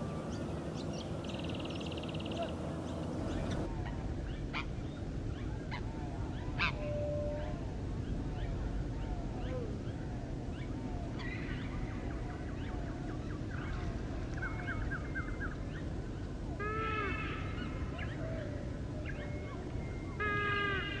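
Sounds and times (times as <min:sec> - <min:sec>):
birds chirping and trilling: 0:00.0 - 0:03.7
drawn-out bird call: 0:00.0 - 0:03.7.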